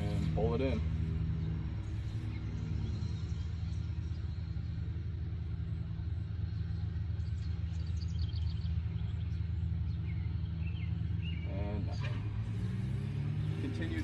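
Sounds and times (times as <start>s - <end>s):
bird chirps: 1.3s - 12.3s.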